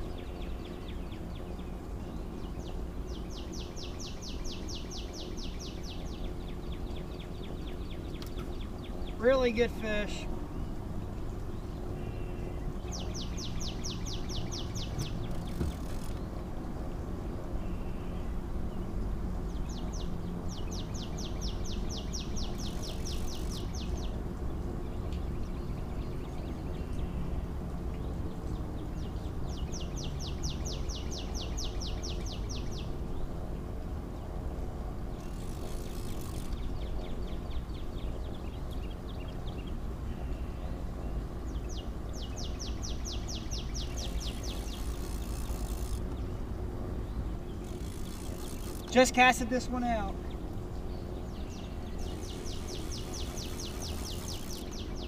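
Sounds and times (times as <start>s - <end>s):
low rumble of wind: 0.0s - 55.0s
songbird trilling: 12.0s - 16.2s, 19.6s - 24.1s, 41.6s - 46.2s, 47.0s - 55.0s.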